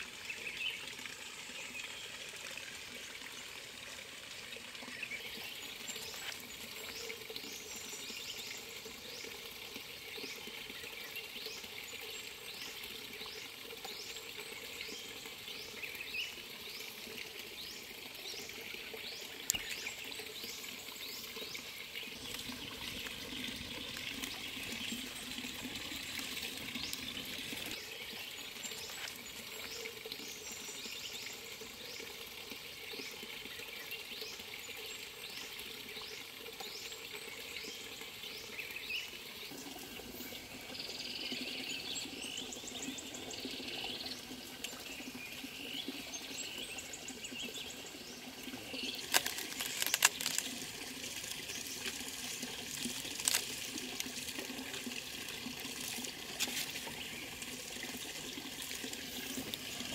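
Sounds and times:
running water: 0:00.0 - 0:59.9
bird and insect chirps: 0:04.8 - 0:32.1, 0:36.6 - 0:54.2.

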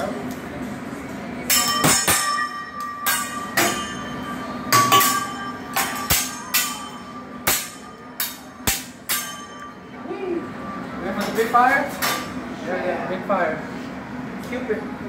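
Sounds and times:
metal spatula and knife clanging: 0:01.5 - 0:09.8.

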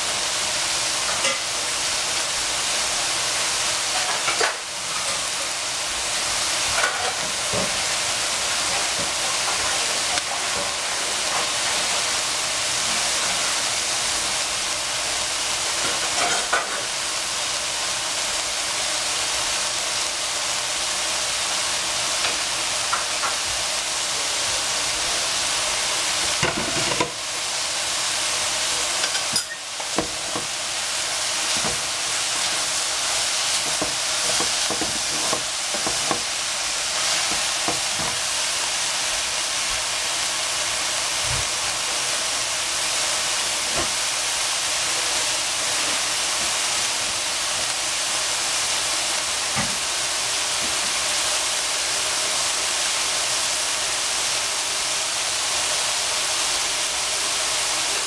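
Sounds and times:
vegetables sizzling in a pan: 0:00.0 - 0:58.0
wooden spatula scraping pan: 0:33.5 - 0:36.3.

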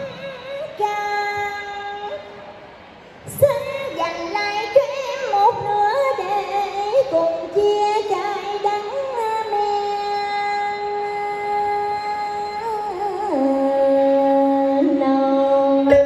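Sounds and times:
woman singing through loudspeakers: 0:00.0 - 0:02.5, 0:03.2 - 0:16.0.

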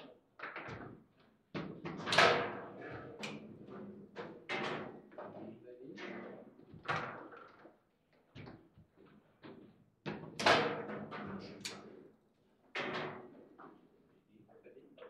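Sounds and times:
foosball ball and rods knocking: 0:01.6 - 0:05.1, 0:09.5 - 0:11.9, 0:12.8 - 0:13.8.

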